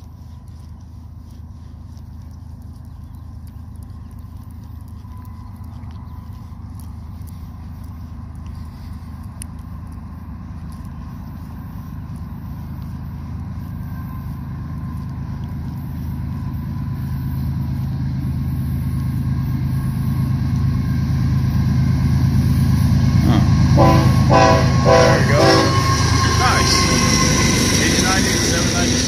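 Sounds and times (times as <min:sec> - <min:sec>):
diesel locomotive rumble: 0:00.0 - 0:29.0
locomotive horn blasts: 0:23.2 - 0:29.0.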